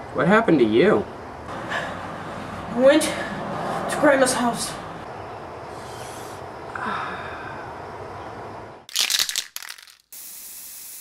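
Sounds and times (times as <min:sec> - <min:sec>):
high hiss: 0:10.1 - 0:11.0.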